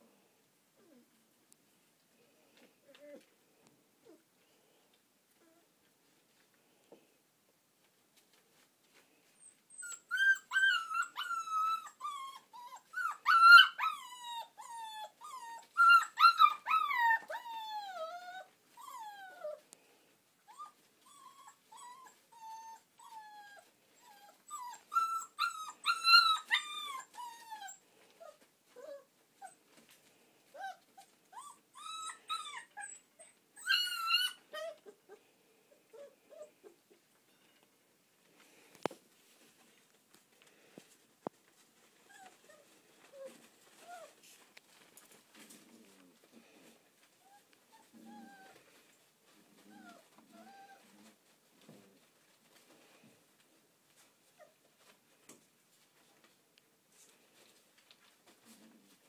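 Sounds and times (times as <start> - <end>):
puppies whining and whimpering: 2.9 - 3.3, 9.4 - 19.6, 20.4 - 29.6, 30.5 - 35.3, 35.9 - 36.8, 42.0 - 44.2, 47.2 - 48.8, 49.5 - 51.2.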